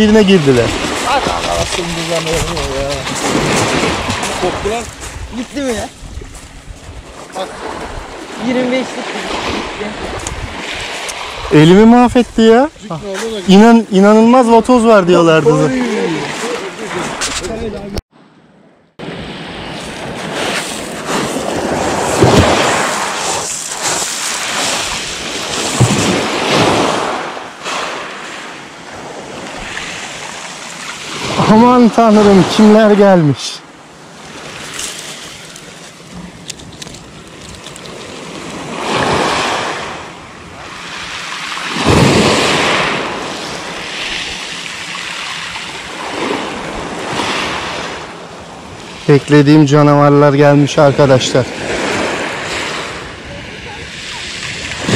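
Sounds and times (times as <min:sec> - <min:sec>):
waves washing onto pebbles: 0:00.0 - 0:06.6, 0:19.0 - 0:33.1, 0:34.1 - 0:48.0
wind buffeting microphone: 0:00.0 - 0:13.4.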